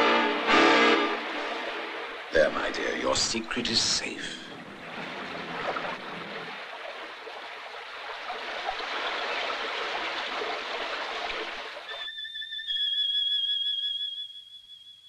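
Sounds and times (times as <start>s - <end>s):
gurgling stream water: 0.4s - 12.0s
high steady whistling tone: 11.8s - 15.0s.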